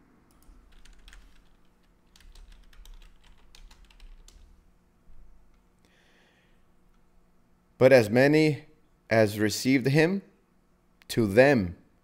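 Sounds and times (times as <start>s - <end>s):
typing on a keyboard: 0.3s - 4.5s.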